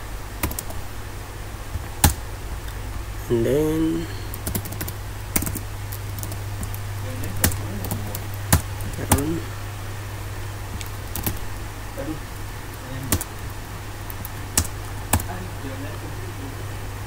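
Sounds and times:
steady low hum: 0.0 - 17.0
keyboard keystrokes: 0.4 - 0.8, 2.0 - 2.2, 4.3 - 6.8, 10.7 - 11.4, 14.1 - 15.3.

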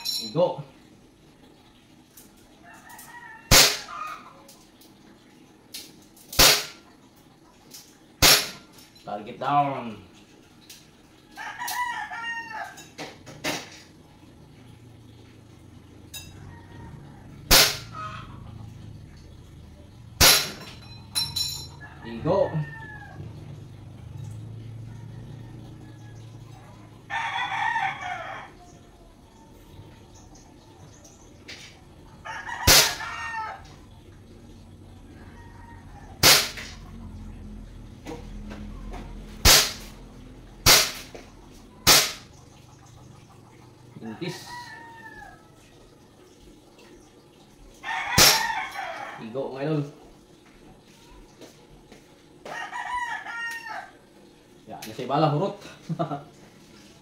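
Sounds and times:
rooster crowing: 2.6 - 4.5, 11.3 - 13.0, 16.1 - 18.7, 21.7 - 28.8, 32.1 - 34.0, 34.8 - 36.9, 44.0 - 45.9, 47.8 - 49.4, 52.4 - 54.1
airsoft pistol shots: 3.5 - 3.9, 6.4 - 6.8, 8.2 - 8.6, 17.5 - 17.9, 20.2 - 20.6, 36.2 - 36.7, 39.4 - 39.9, 40.6 - 41.1, 41.8 - 42.3.

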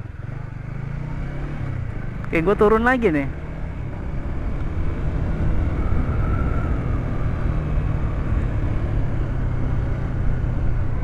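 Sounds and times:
motorcycle engine running: 0.0 - 6.0.

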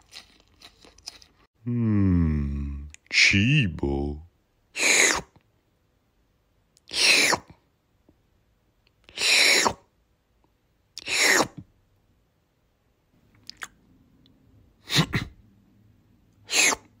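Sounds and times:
breathy falling vocal effect: 1.6 - 2.9.

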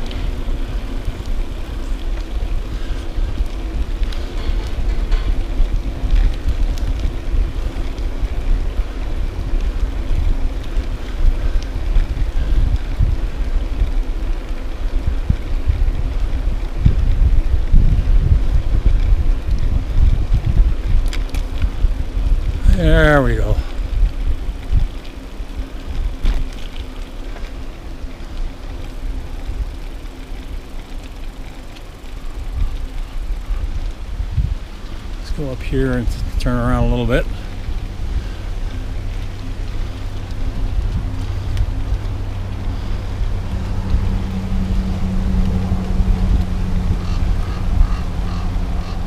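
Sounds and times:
wind buffeting microphone: 0.0 - 49.0
light ticks: 37.3 - 42.7.

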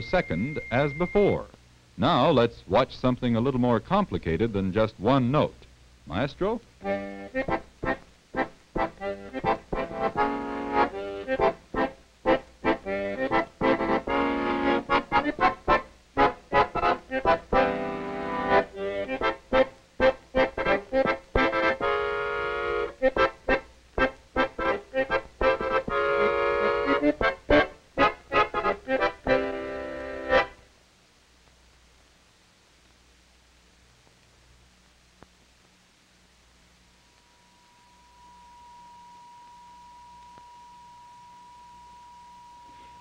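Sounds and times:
piano accordion playing: 6.8 - 30.6.

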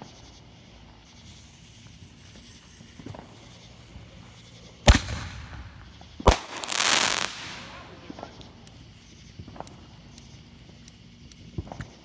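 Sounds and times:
firework bang: 4.8 - 8.2.

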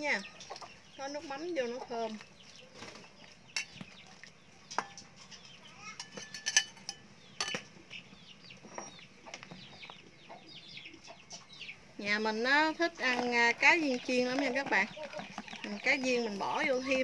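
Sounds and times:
chickens clucking: 0.0 - 17.0
metal ladle clinking against pot: 3.5 - 7.8.

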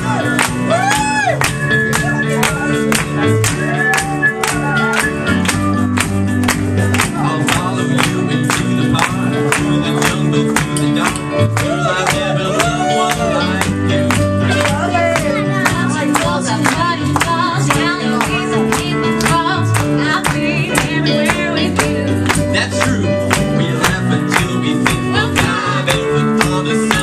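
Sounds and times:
rock band playing: 0.0 - 27.0
man and woman singing: 7.0 - 27.0.

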